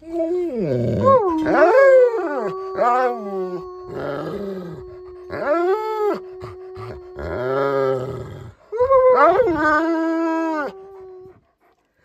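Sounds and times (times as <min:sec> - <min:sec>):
dog howling: 0:00.0 - 0:11.4.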